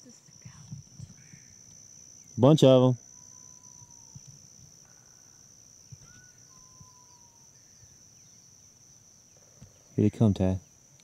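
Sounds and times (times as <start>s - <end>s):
insect drone: 0.0s - 11.0s
whistled bird notes: 3.0s - 4.3s, 6.0s - 8.4s.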